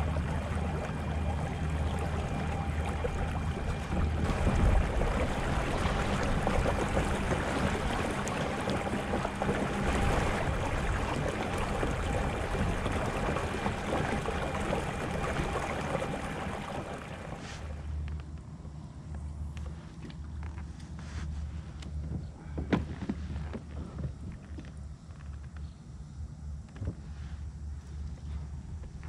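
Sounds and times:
water rushing past a hull: 0:00.0 - 0:18.0.

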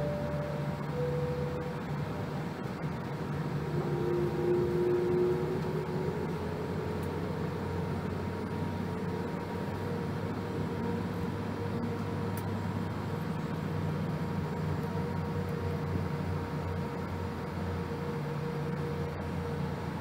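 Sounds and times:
short tone: 0:00.0 - 0:02.3, 0:03.6 - 0:06.0
faint steady whine: 0:00.0 - 0:20.0
low aircraft engine hum: 0:00.0 - 0:20.0.

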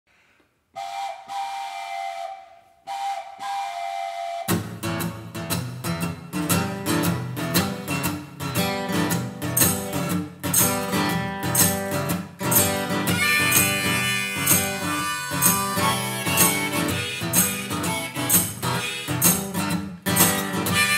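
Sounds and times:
acoustic guitar strumming: 0:04.5 - 0:20.9
harmonica: 0:12.5 - 0:20.9.

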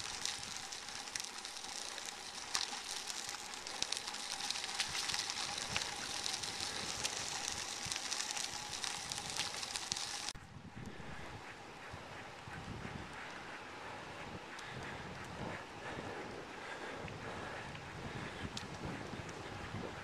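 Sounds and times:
bicycle tyres rolling over leaves: 0:00.0 - 0:10.4, 0:14.6 - 0:20.0.

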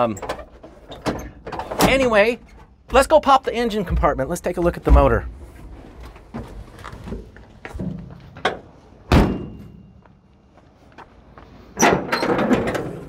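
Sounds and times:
metal rattling and scraping: 0:00.0 - 0:08.8, 0:11.8 - 0:13.0
metal clunks: 0:06.1 - 0:10.0, 0:11.8 - 0:13.0
heavy metal slam: 0:09.1 - 0:09.8.

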